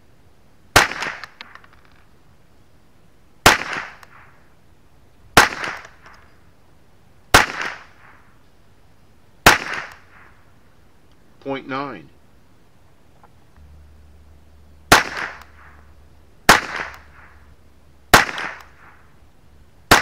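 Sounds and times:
rifle shots: 0.7 - 1.7, 3.4 - 4.4, 5.4 - 6.2, 7.3 - 8.2, 9.4 - 10.4, 14.9 - 15.8, 16.4 - 17.5, 18.1 - 19.1.

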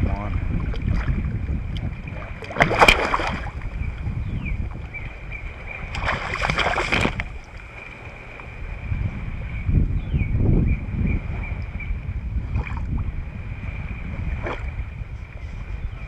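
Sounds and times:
water splashing: 0.0 - 3.8, 4.7 - 8.7, 14.2 - 14.9
wind rumble on microphone: 0.0 - 16.0.

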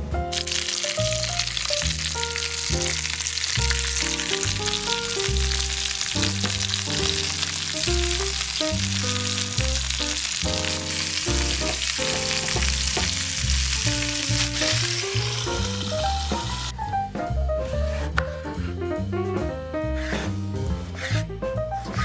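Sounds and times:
chicken sizzling in frying pan: 0.3 - 16.8.

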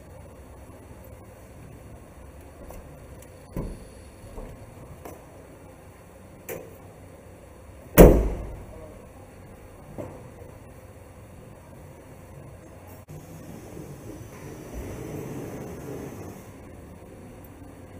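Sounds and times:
van door shutting with thud: 8.0 - 8.7.

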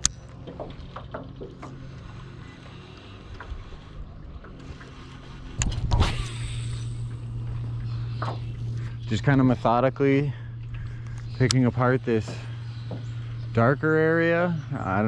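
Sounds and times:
low mechanical hum: 0.0 - 15.0
fishing rod cast swish: 5.6 - 7.0.

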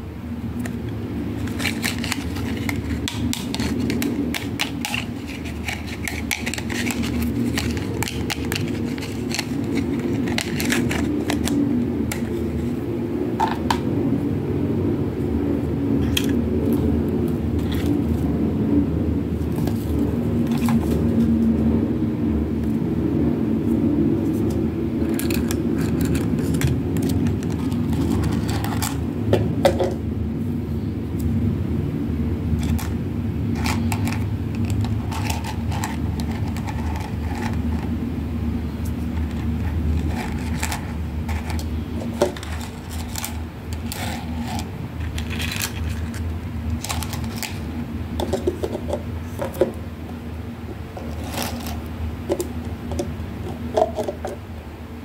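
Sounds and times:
plastic toy tea set clattering: 1.4 - 12.3, 46.8 - 47.6, 51.0 - 54.4.

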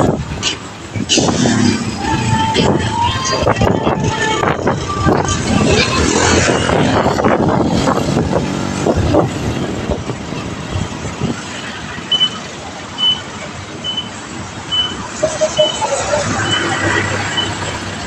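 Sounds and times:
motor tricycle engines running: 0.0 - 18.0
street traffic: 0.0 - 18.0
short high electronic beep: 14.7 - 17.6.

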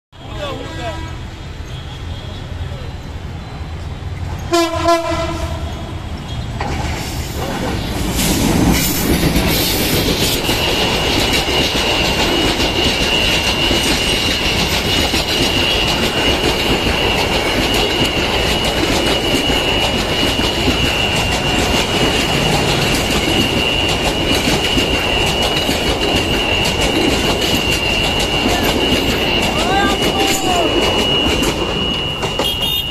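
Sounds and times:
train rumbling and clattering: 0.2 - 32.9
high-pitched squeal: 7.0 - 32.9.

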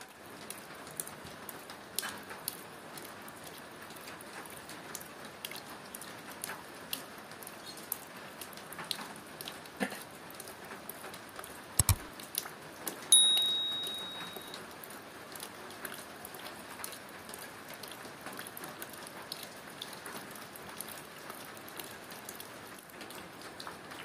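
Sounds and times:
light rain pattering: 0.0 - 24.0
quick clicks: 11.8 - 12.1
bell-like ding: 13.1 - 14.6.

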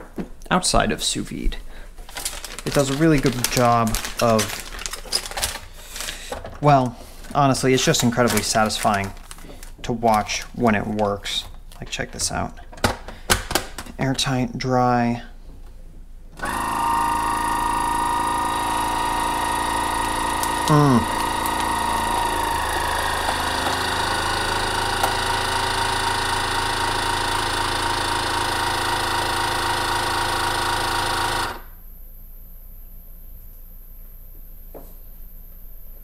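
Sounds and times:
vacuum sealer pump running: 2.2 - 10.6, 16.4 - 31.9.

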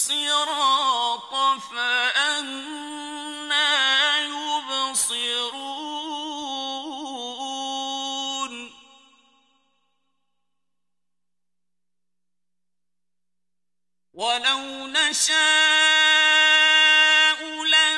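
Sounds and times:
man reciting melodically: 0.0 - 9.0, 14.2 - 17.9.

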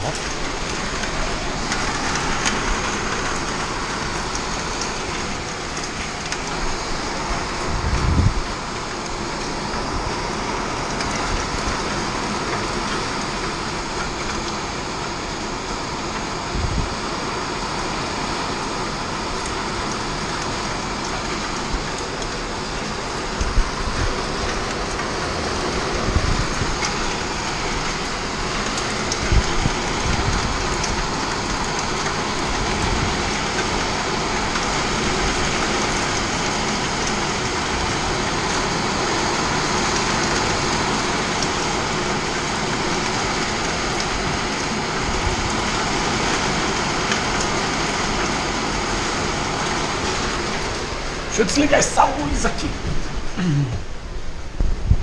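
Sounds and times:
hail and rain on metal roof: 0.0 - 55.0.

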